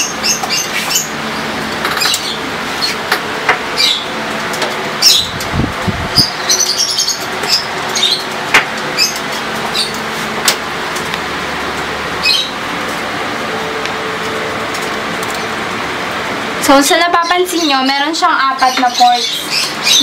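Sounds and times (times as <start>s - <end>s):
background hum and hiss: 0.0s - 20.0s.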